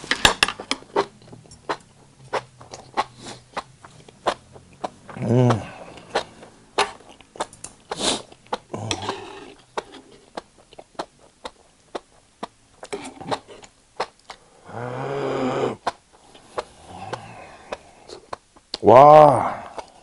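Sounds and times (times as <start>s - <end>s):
chewing mouth clicks and smacks: 0.6s - 5.2s, 5.8s - 8.7s, 9.6s - 14.4s
person groaning: 5.1s - 6.0s, 8.7s - 9.5s, 14.6s - 15.8s, 16.8s - 17.9s, 18.8s - 19.8s
sharp hissing breath: 7.9s - 8.3s, 14.4s - 18.2s.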